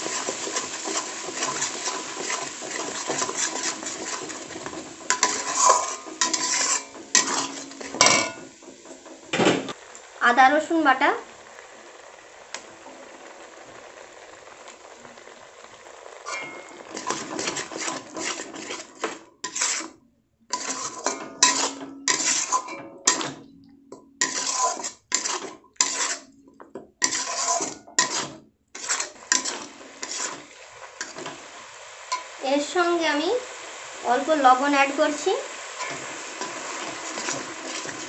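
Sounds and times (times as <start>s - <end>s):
spatula clinking on pan: 0.0s - 9.2s, 16.3s - 19.8s, 20.5s - 30.4s
spatula scraping pan: 0.0s - 10.4s, 11.2s - 38.0s
frying hiss: 0.0s - 38.0s.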